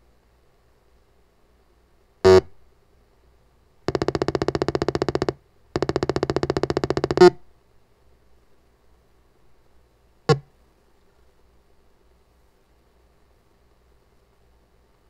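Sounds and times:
rapid pulsing electronic buzz: 3.9 - 7.3.

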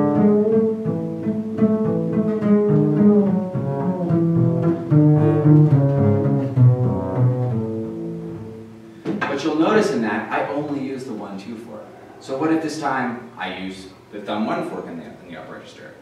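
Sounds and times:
upright bass single notes: 0.0 - 8.8.

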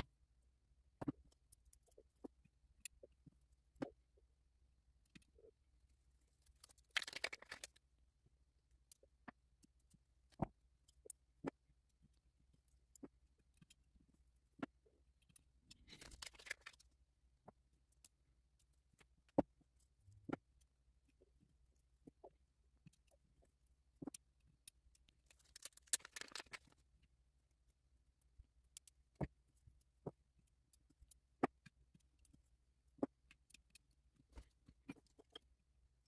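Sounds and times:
faint clicks and taps: 0.8 - 4.3, 6.2 - 36.0.

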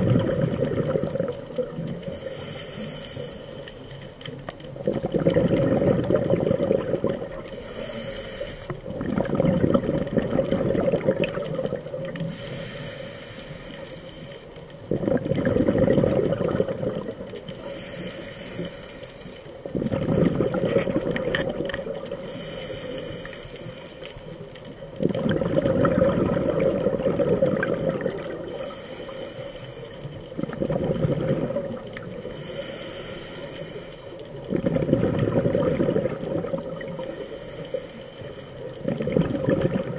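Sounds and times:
gurgling exhaled bubbles: 0.0 - 2.5, 4.6 - 8.0, 8.6 - 12.4, 14.8 - 17.8, 19.6 - 23.1, 24.4 - 29.2, 30.0 - 32.6, 34.2 - 37.4, 38.6 - 39.9
regulator hissing inhale: 1.9 - 4.4, 7.4 - 9.0, 12.2 - 14.9, 17.5 - 19.7, 22.1 - 24.7, 28.2 - 30.4, 32.0 - 34.5, 36.8 - 38.9.

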